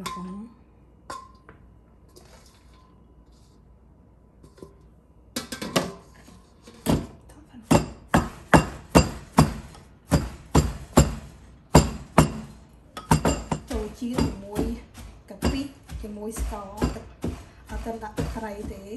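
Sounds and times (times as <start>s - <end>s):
wooden pestle pounding in mortar: 6.9s - 18.9s.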